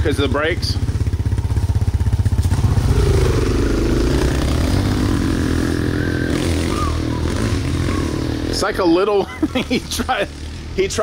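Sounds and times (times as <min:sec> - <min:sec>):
atv engine idling: 0:00.0 - 0:11.0
dirt bike revving and accelerating: 0:02.1 - 0:09.0.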